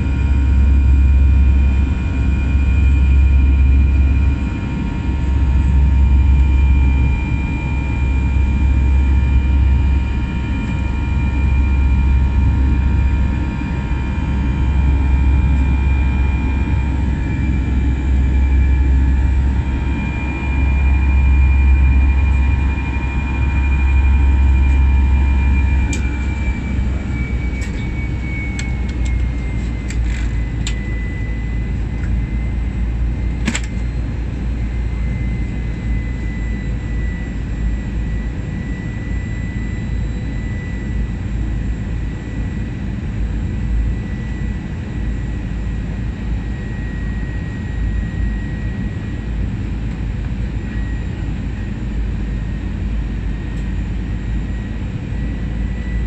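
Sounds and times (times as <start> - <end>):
high engine whine: 0.0 - 56.0
jet engine drone in cabin: 0.0 - 56.0
sharp click: 33.4 - 33.8.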